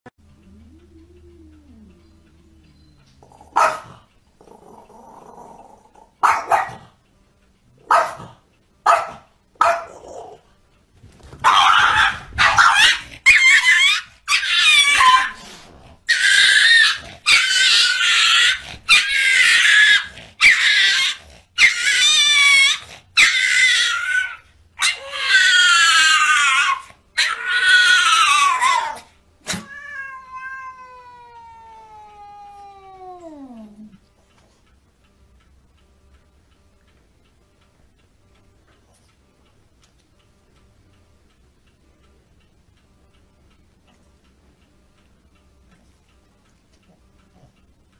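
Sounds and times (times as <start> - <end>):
small dog barking: 3.5 - 4.0, 6.2 - 6.9, 7.8 - 10.2, 11.4 - 15.4
dog and cat yowling and screaming: 11.4 - 33.6.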